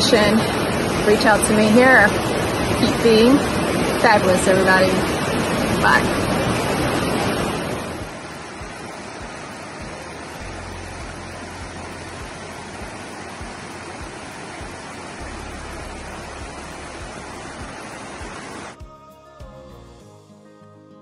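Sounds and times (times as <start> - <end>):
water rushing in a rocky stream: 0.0 - 18.8
low rumble: 5.3 - 18.8.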